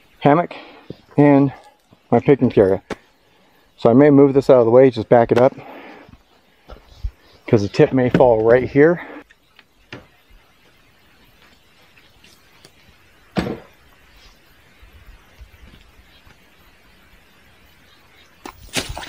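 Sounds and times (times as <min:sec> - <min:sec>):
quiet outdoor background: 0:00.0 - 0:19.0.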